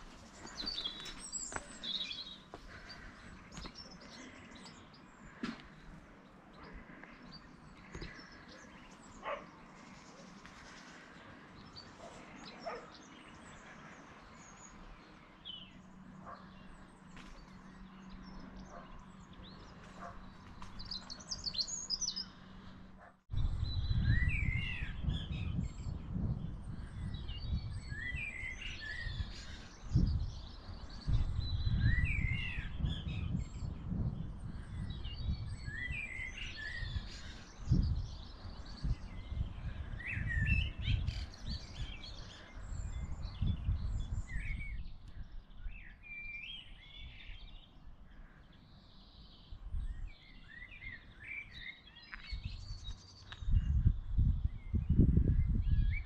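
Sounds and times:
songbirds chirping and singing: 0.0s - 56.0s.

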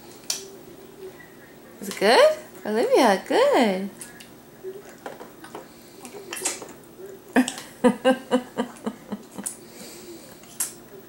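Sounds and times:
baby gnawing and sucking: 4.0s - 6.9s.

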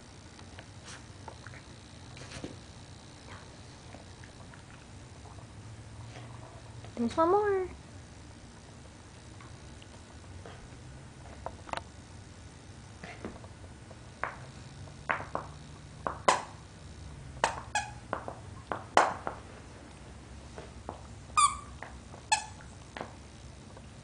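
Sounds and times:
squeaky toy squeaking: 17.7s - 18.0s, 21.4s - 22.6s.

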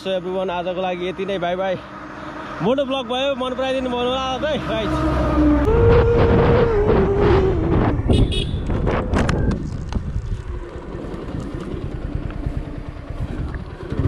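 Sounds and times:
road noise: 0.0s - 14.0s
truck engine passing by: 0.5s - 8.1s
wind buffeting microphone: 5.4s - 14.0s.

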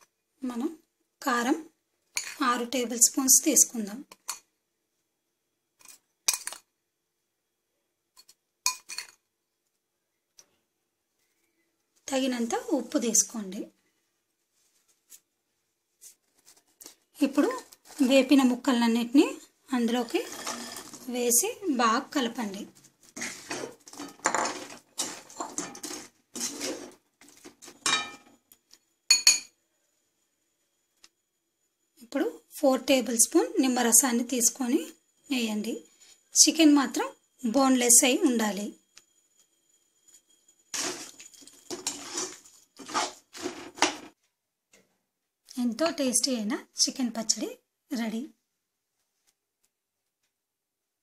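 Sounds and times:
metal spoon scraping a pan: 19.8s - 21.1s, 23.1s - 28.4s, 40.1s - 44.2s
spoon clinking against pan: 29.1s - 29.5s.

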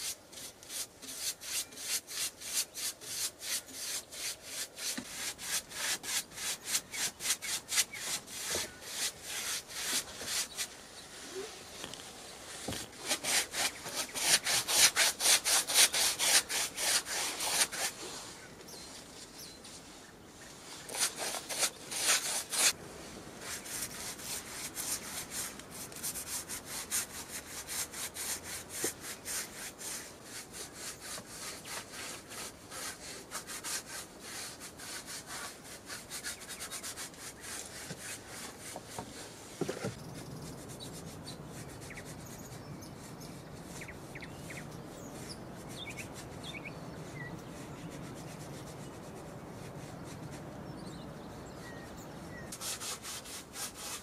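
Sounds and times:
hand tool scraping wood: 0.0s - 18.4s, 20.7s - 22.8s, 23.4s - 40.0s, 52.5s - 54.0s.

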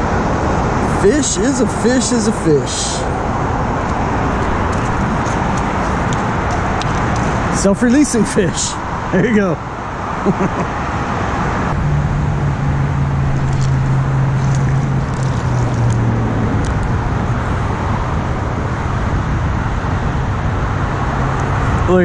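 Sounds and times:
road traffic noise: 0.0s - 22.0s
vehicle engine hum: 0.0s - 22.0s.

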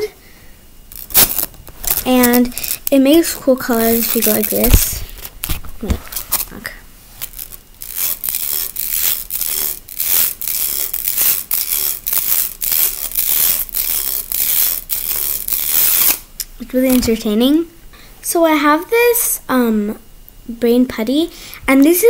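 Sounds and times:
plastic slinky coils clattering: 0.9s - 17.3s.

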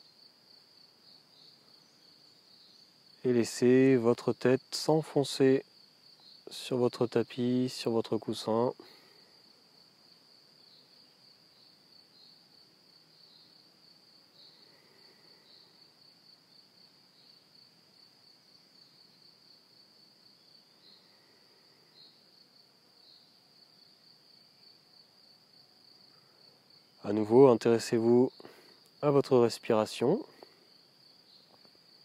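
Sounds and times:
crickets trilling: 0.0s - 32.0s.

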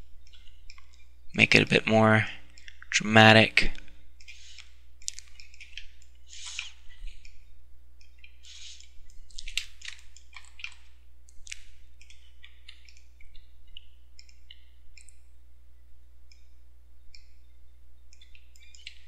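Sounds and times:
low electrical hum: 0.0s - 19.0s
computer mouse clicking: 4.2s - 7.4s, 8.0s - 15.3s, 16.3s - 16.5s, 18.1s - 19.0s.

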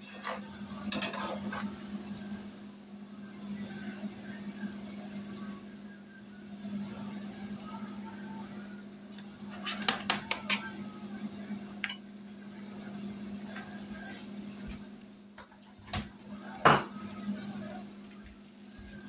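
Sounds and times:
utensil scraping a skillet: 0.0s - 2.2s, 9.3s - 10.8s.

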